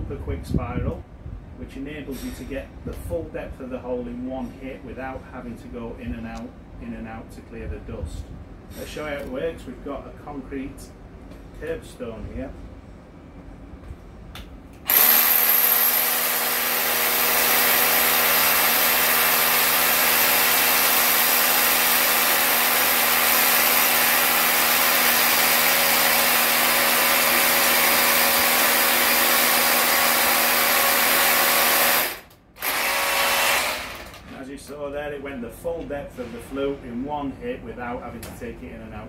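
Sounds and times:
rotary hammer drilling into concrete: 0:14.9 - 0:34.3.

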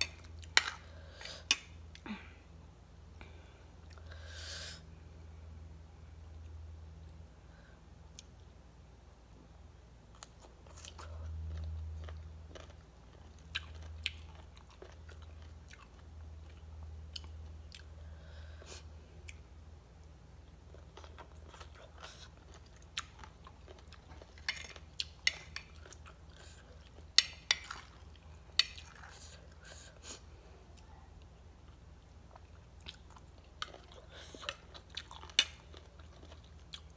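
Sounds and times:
chewing and crunching salad: 0:00.0 - 0:02.0, 0:10.0 - 0:36.9.

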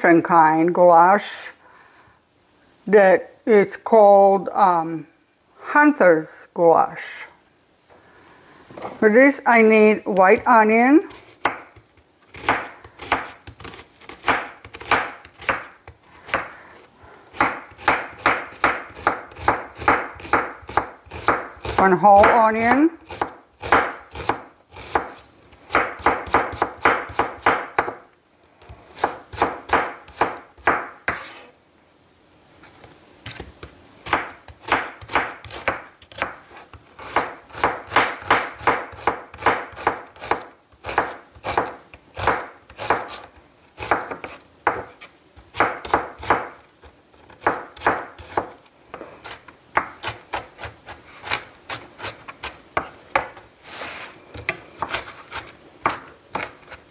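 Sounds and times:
knife chopping on wooden board: 0:11.4 - 0:16.6, 0:17.3 - 0:28.0, 0:29.0 - 0:31.4, 0:33.3 - 0:36.4, 0:37.0 - 0:46.6, 0:47.3 - 0:48.6, 0:49.3 - 0:52.2.

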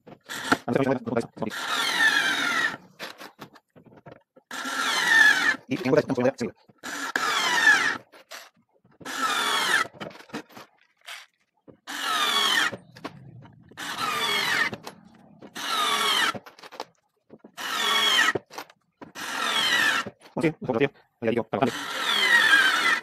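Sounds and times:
cordless screwdriver whining: 0:11.9 - 0:16.5.

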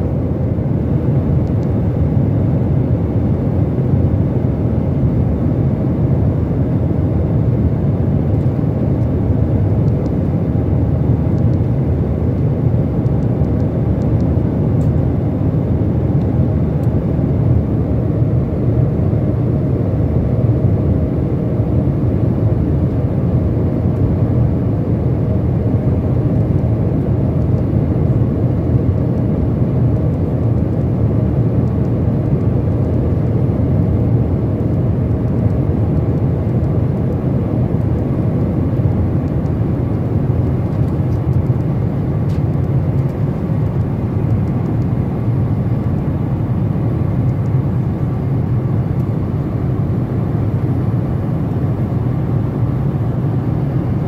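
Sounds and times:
airplane cabin engine drone: 0:00.0 - 0:54.0.

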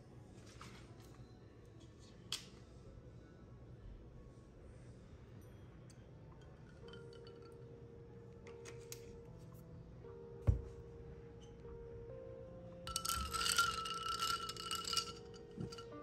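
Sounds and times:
soft background music: 0:00.0 - 0:16.0
milk pouring: 0:12.9 - 0:15.8
ice cubes clinking in a glass: 0:12.9 - 0:16.0.

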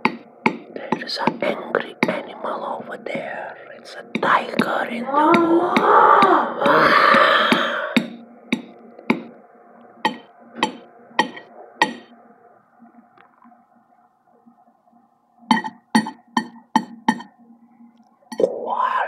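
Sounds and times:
sharp ringing strikes: 0:10.1 - 0:12.1.

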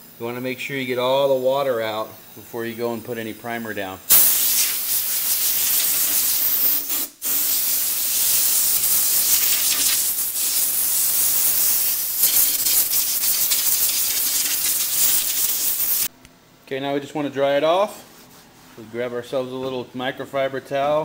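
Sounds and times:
compressed air blow gun hissing: 0:04.1 - 0:16.1.

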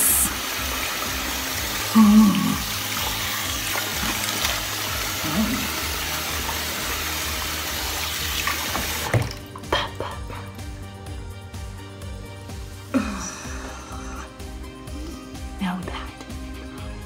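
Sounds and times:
sink tap running: 0:00.0 - 0:09.7
water splashing on face: 0:00.0 - 0:09.8.

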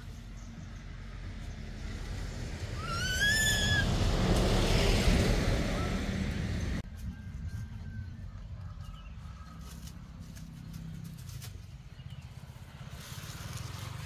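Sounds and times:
vehicle passing rumble and hiss: 0:00.0 - 0:06.9, 0:09.2 - 0:14.0
high squeal: 0:02.8 - 0:04.1.

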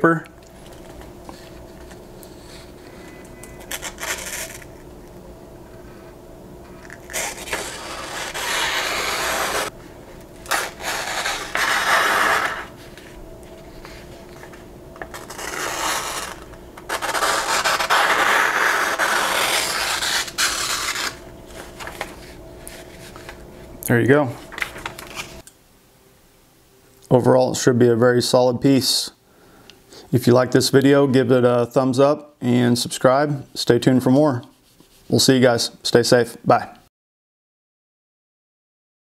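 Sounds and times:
knife slicing through paper: 0:07.1 - 0:09.7, 0:10.5 - 0:12.8, 0:15.1 - 0:21.2.

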